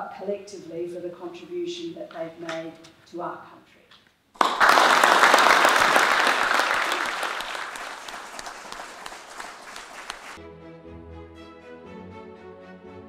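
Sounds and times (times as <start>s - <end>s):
audience applause: 4.4s - 10.4s.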